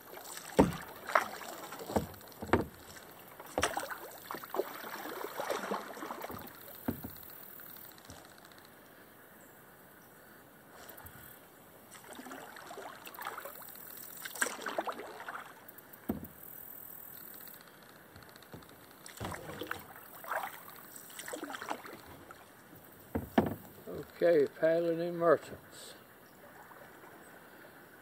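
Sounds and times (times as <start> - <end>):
kayak paddle strokes in water: 0.0 - 8.6, 10.8 - 24.2.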